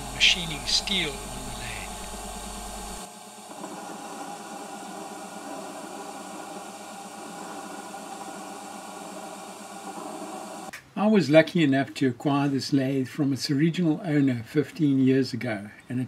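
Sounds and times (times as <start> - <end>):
lathe cutting steel: 0.0 - 10.7.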